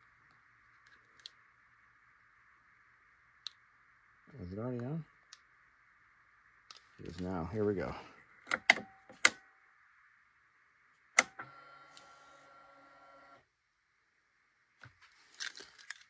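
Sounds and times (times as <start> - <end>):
ignition switch clicks: 8.5 - 9.4.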